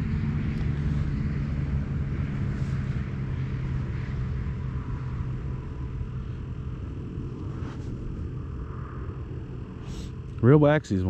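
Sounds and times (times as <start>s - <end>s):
low engine drone: 0.0s - 11.0s.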